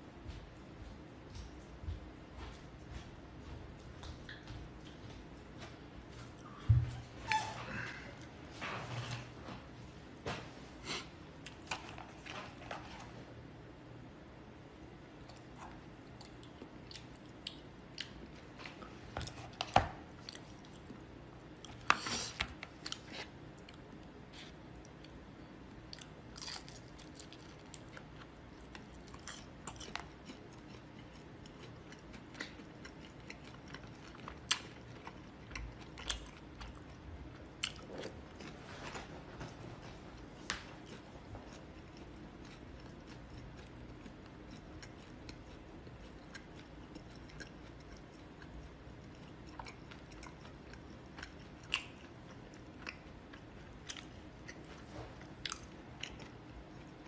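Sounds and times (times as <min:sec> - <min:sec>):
low steady hum: 0:00.0 - 0:57.0
person chewing and biting food: 0:25.8 - 0:38.7, 0:40.2 - 0:57.0.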